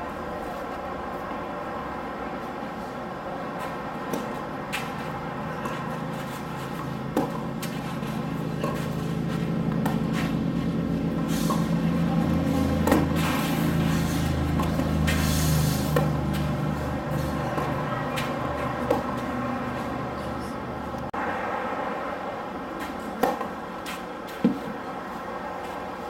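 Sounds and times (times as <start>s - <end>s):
tennis ball hit by racket: 3.6s - 19.3s, 22.8s - 24.8s.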